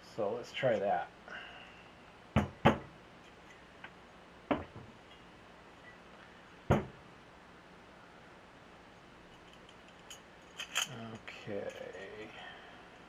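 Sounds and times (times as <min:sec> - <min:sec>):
metal parts knocking with metallic ring: 0:09.4 - 0:11.0.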